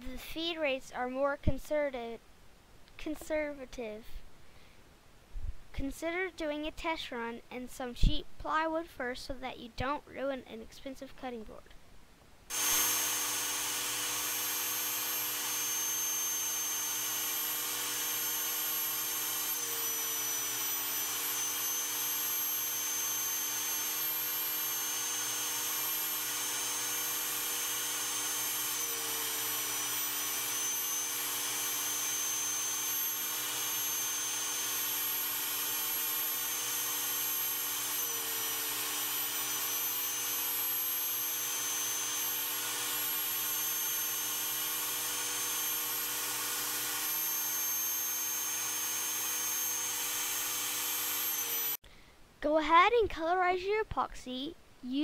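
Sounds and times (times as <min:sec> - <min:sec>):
router whining: 0:12.5 - 0:51.8
shop vacuum running: 0:12.5 - 0:51.8.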